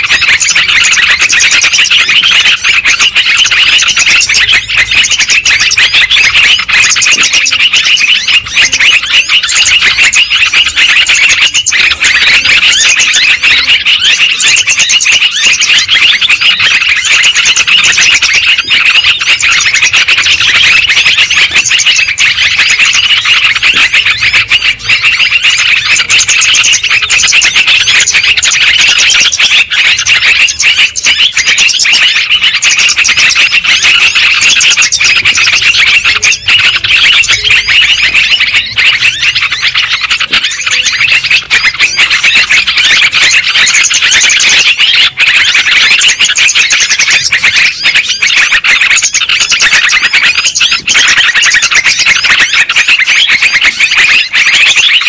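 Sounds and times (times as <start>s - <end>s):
bulbul chattering calls: 0.0s - 55.0s.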